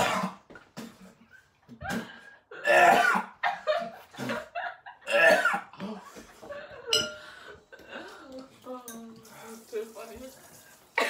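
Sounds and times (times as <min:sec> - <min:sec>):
person coughing: 0:00.0 - 0:00.5, 0:01.8 - 0:03.4, 0:05.1 - 0:06.0.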